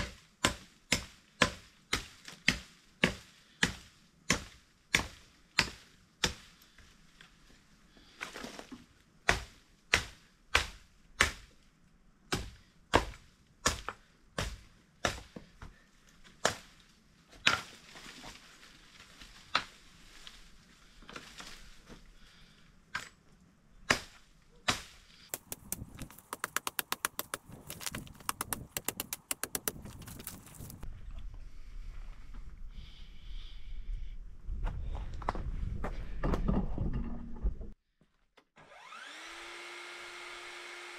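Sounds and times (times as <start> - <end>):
fast run of clicks: 25.3 - 30.8.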